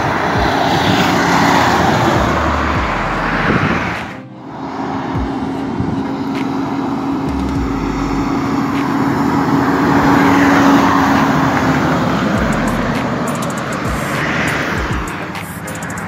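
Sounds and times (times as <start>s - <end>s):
truck diesel engine hum: 0.0s - 16.0s
tyre and road noise: 0.0s - 16.0s.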